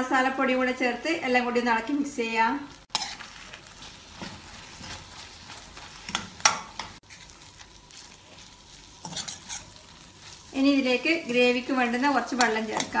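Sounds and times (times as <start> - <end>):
faint frying sizzle: 0.0 - 13.0
spatula scraping steel pan: 2.9 - 7.0, 9.0 - 10.4.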